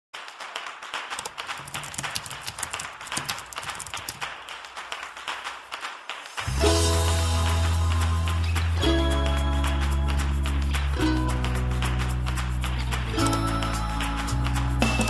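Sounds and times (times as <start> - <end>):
keyboard typing clicks: 1.2 - 4.2
music: 6.2 - 15.0.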